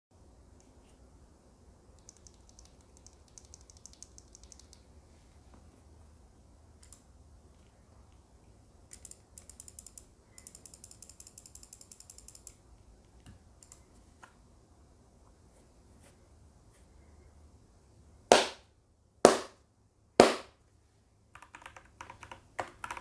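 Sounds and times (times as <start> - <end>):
mouse scroll wheel ticking: 2.0 - 4.8, 8.9 - 12.6.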